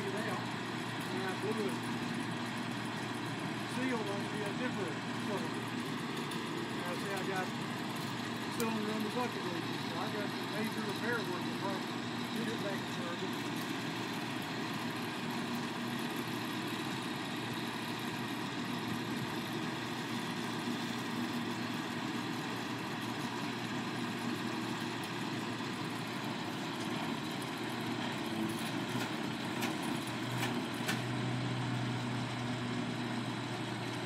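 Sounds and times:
truck engine running: 0.0 - 34.0.

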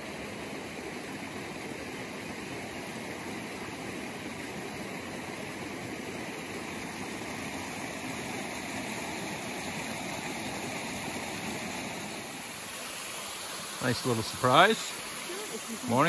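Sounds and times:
rocky creek water rushing: 0.0 - 16.0.

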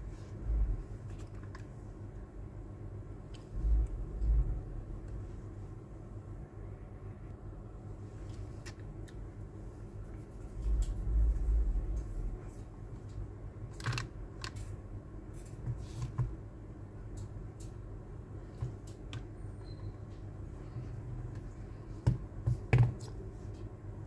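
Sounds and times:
low rumble: 0.0 - 1.2, 2.1 - 7.9, 10.4 - 13.5
steady low hum: 0.0 - 24.0.

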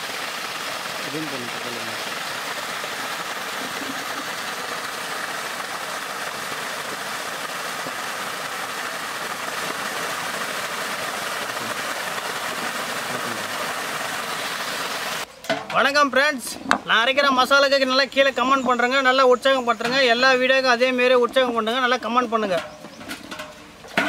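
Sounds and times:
water gushing from pipe: 0.0 - 15.3
water splashing on metal plate: 0.0 - 15.8, 19.8 - 24.0.

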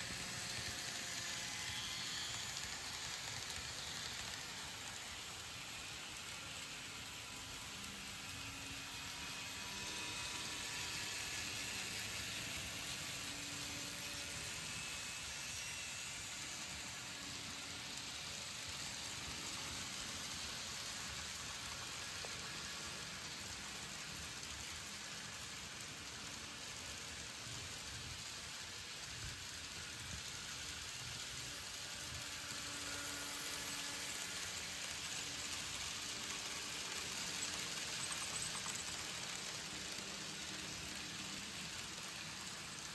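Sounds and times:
faint motor hum: 0.0 - 42.9
model train wheels rattling: 0.0 - 42.9.

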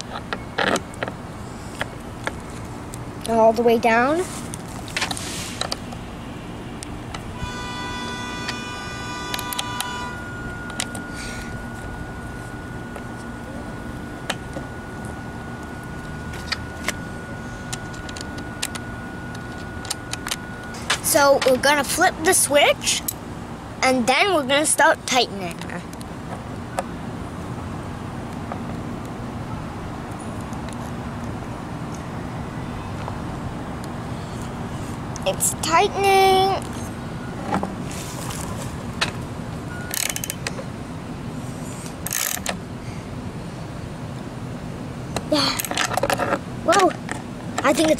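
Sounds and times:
low hum: 0.0 - 23.8
faint high tone: 7.4 - 22.7.

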